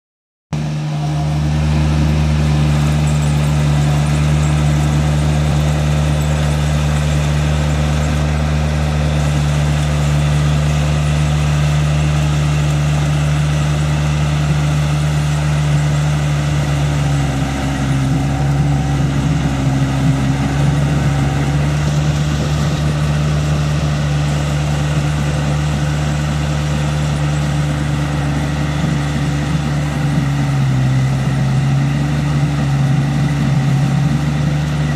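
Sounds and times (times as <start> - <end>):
combine harvester running: 0.5 - 34.9.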